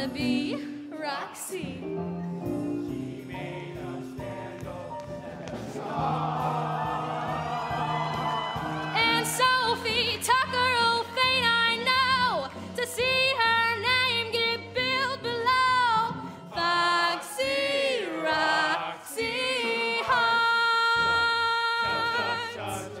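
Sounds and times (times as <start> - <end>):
musical accompaniment: 0.0 - 23.0
woman singing with vibrato: 8.9 - 17.9, 19.1 - 22.6.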